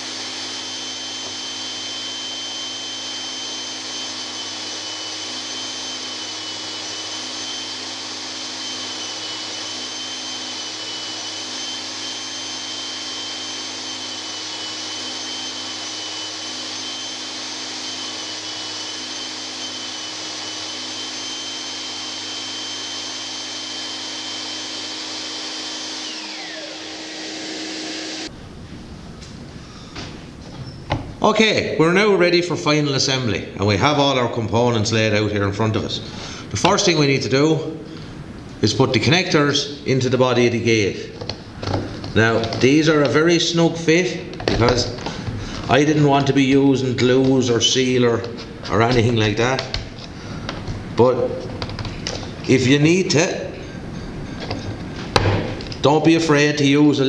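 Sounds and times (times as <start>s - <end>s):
belt sander running: 0.0s - 28.3s, 39.1s - 53.1s
belt sander spinning down: 0.0s - 28.3s, 39.8s - 52.8s
vacuum whine: 0.0s - 31.1s, 34.7s - 57.0s.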